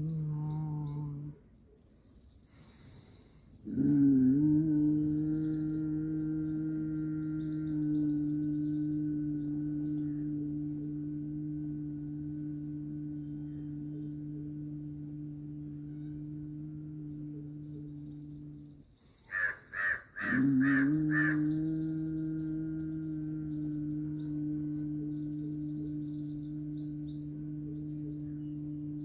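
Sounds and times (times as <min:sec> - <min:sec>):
meditation drone humming: 0:00.0 - 0:01.5, 0:03.6 - 0:29.0
faint bird chirps: 0:00.0 - 0:29.0
crow cawing: 0:19.3 - 0:21.5.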